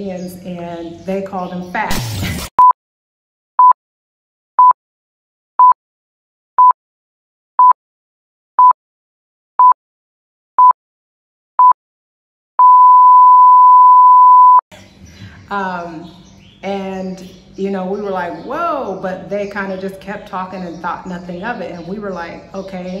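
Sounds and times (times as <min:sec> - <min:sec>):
electronic beeps: 0:12.6 - 0:14.6.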